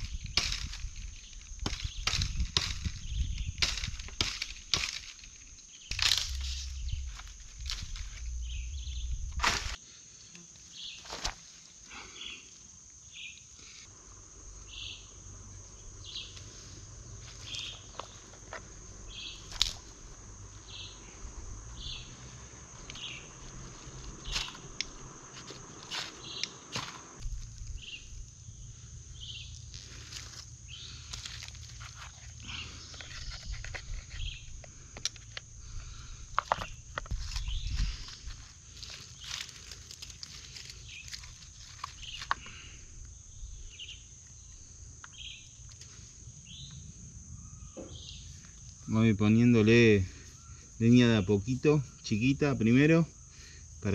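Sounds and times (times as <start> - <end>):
steady high whine: 0.0 - 9.8, 13.8 - 43.8
twigs snapping and cracking: 0.0 - 9.8, 19.4 - 20.0, 22.8 - 28.4, 29.5 - 35.5, 36.3 - 42.6.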